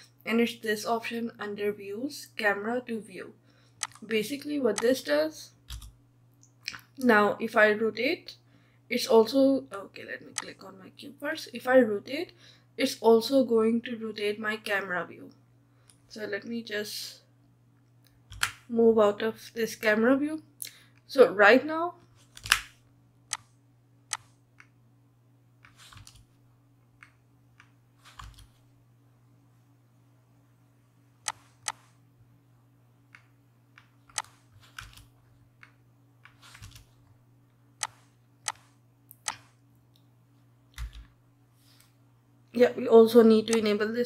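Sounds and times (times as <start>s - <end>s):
faint low hum: 0.0s - 44.0s
mouse clicks: 37.8s - 39.6s.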